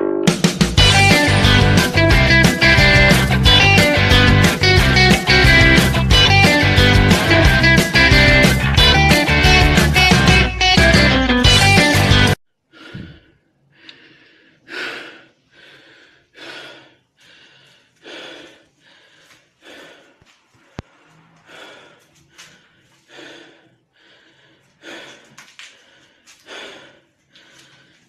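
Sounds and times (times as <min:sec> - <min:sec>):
music: 0:00.0 - 0:12.4
heavy breathing: 0:12.7 - 0:28.0.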